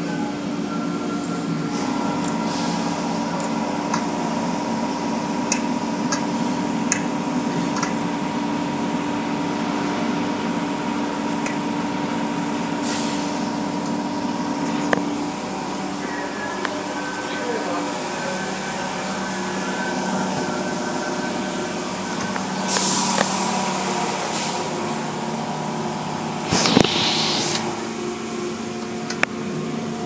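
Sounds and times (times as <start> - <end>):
machine hum: 13.4 - 30.0
spraying water hiss: 26.2 - 28.0.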